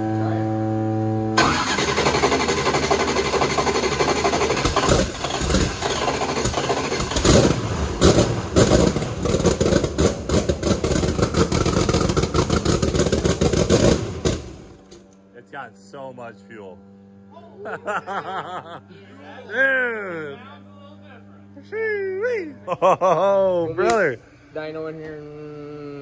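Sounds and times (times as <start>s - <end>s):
engine running unevenly: 0.0s - 15.3s
engine throttle blips: 0.0s - 18.7s.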